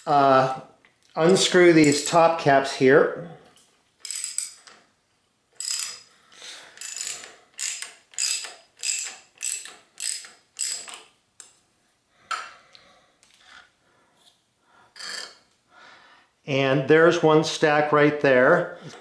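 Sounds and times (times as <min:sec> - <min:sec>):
ratchet wrench clicking: 0:04.0 - 0:04.8, 0:05.6 - 0:06.1, 0:06.8 - 0:11.0.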